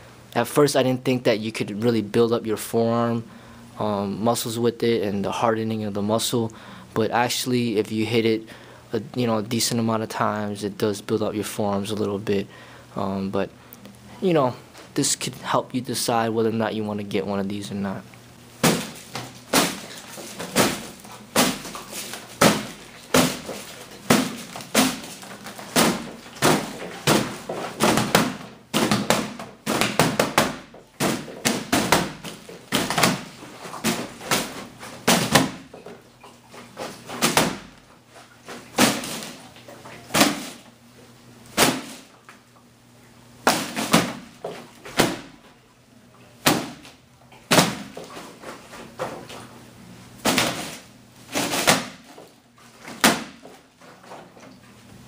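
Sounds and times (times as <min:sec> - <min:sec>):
knocks and slaps on training dummy: 0:18.6 - 0:36.0, 0:36.8 - 0:37.8, 0:38.8 - 0:39.4, 0:40.1 - 0:40.6, 0:41.6 - 0:42.1, 0:43.4 - 0:45.4, 0:46.4 - 0:48.2, 0:50.2 - 0:52.2, 0:52.9 - 0:53.6.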